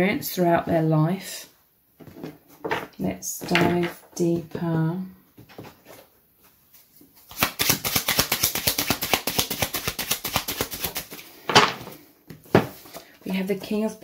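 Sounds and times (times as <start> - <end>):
cards being shuffled: 6.7 - 11.3.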